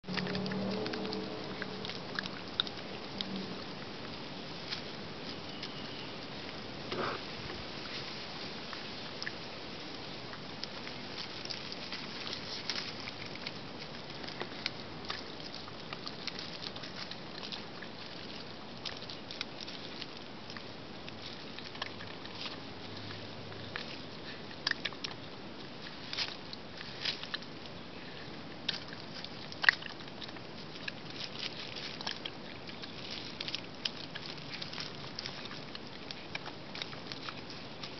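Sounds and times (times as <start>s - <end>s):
animal chewing wet smacks: 0.0s - 4.0s
animal biting and chewing: 0.0s - 37.9s
steady background hiss: 0.1s - 37.9s.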